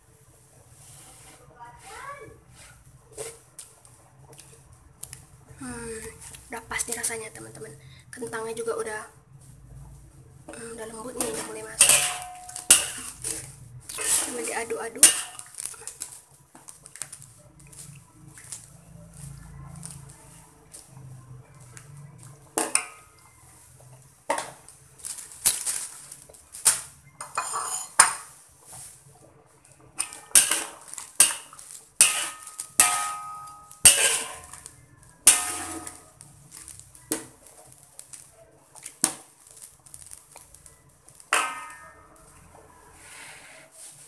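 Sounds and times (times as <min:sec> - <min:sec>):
metal ladle clanking in wok: 0:11.2 - 0:15.6, 0:27.2 - 0:28.3, 0:30.0 - 0:34.6, 0:35.2 - 0:36.2, 0:41.3 - 0:42.2.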